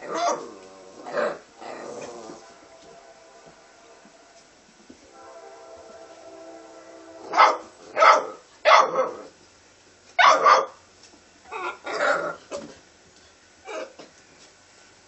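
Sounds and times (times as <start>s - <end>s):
puppies barking: 0.0s - 2.4s, 7.2s - 9.3s, 10.2s - 10.8s
faint whine: 0.5s - 9.8s.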